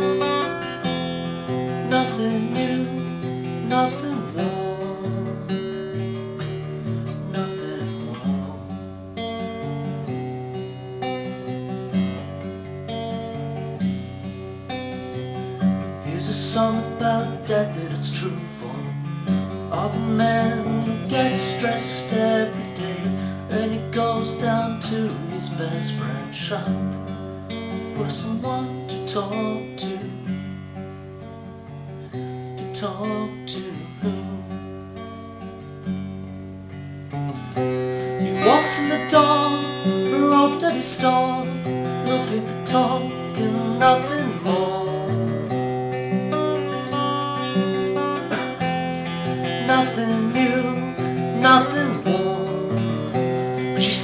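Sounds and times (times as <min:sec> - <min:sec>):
acoustic guitar strummed: 0:00.0 - 0:54.0
man singing: 0:01.5 - 0:05.6, 0:06.7 - 0:08.8, 0:16.0 - 0:26.9, 0:27.7 - 0:30.3, 0:32.7 - 0:34.6, 0:38.3 - 0:45.6, 0:47.4 - 0:54.0.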